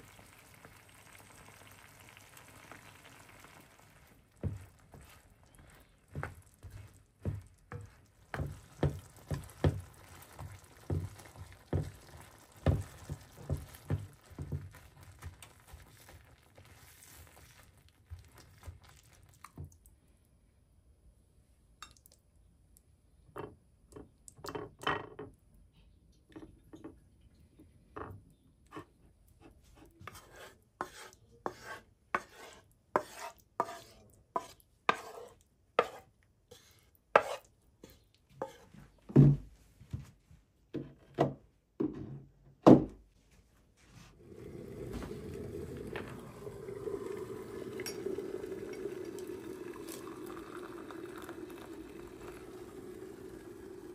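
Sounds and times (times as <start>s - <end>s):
beans sizzling: 0.0s - 20.0s, 30.1s - 38.6s, 44.1s - 53.9s
spatula stirring in frying pan: 0.1s - 19.5s, 28.7s - 38.8s
knocks and scrapes in pan: 6.1s - 18.8s, 28.7s - 39.4s.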